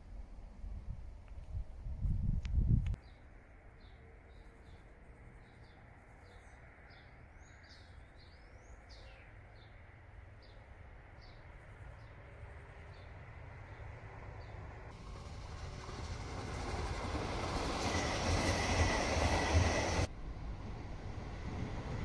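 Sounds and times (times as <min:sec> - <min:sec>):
distant electric train rumble: 0:09.3 - 0:22.0.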